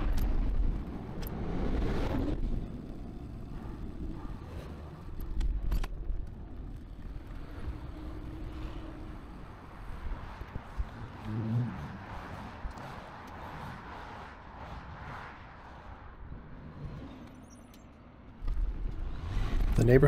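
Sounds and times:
wind rumble on microphone: 0.0 - 17.3.

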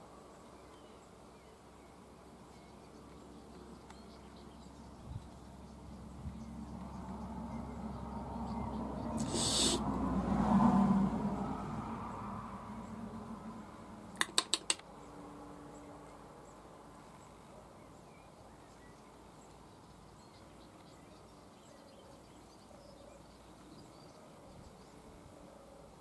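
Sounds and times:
faint bird calls: 9.0 - 9.8
sharp clicks: 14.1 - 14.9.

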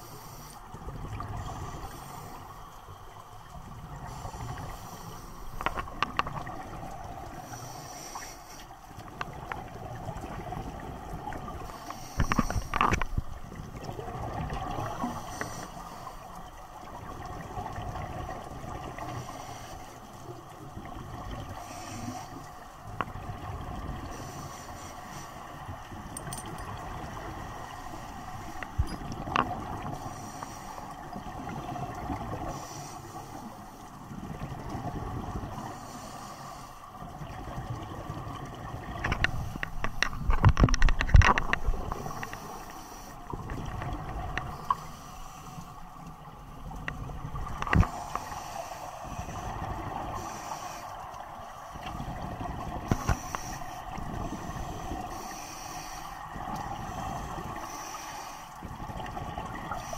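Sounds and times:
underwater hum: 0.0 - 59.9.

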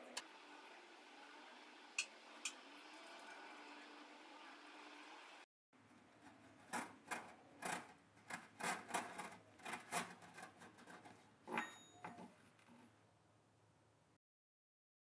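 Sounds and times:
metallic ringing ping: 11.6 - 12.2.

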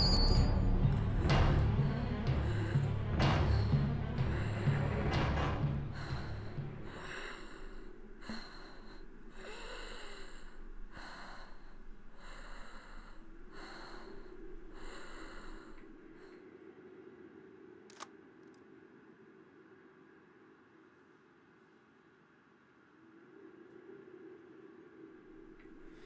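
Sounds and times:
low music: 0.0 - 16.2
person breathing heavily: 1.0 - 16.5.

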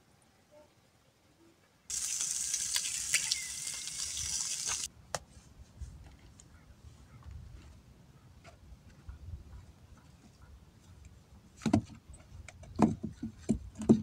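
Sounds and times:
water running: 1.9 - 4.9.

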